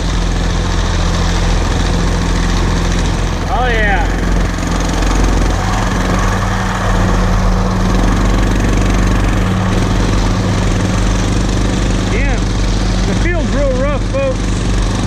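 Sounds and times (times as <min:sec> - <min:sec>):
tractor engine running under load: 0:00.0 - 0:15.0.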